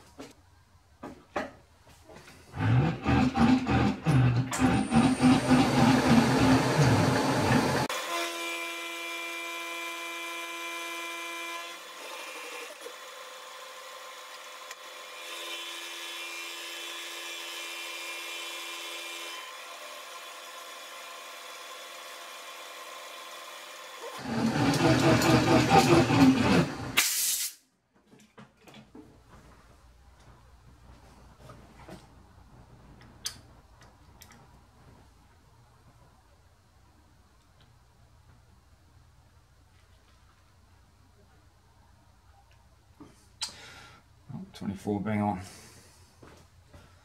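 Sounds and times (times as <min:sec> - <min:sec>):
milling machine whine: 0:03.1 - 0:07.9.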